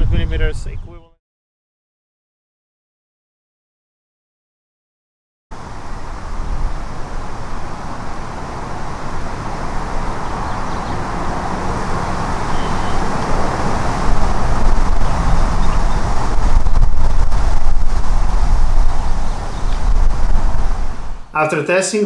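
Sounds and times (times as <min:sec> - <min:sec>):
wind buffeting microphone: 0:00.0 - 0:01.1, 0:05.6 - 0:21.3
steady rushing noise: 0:05.6 - 0:21.4.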